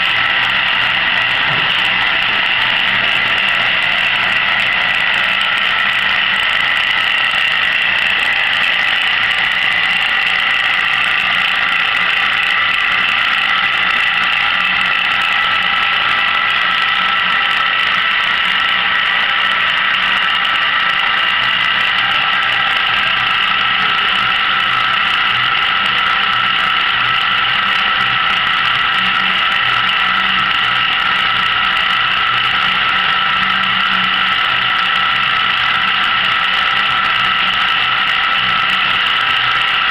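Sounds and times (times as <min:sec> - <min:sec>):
low hum: 0:00.0 - 0:10.3
electric motors whirring: 0:00.0 - 0:39.9.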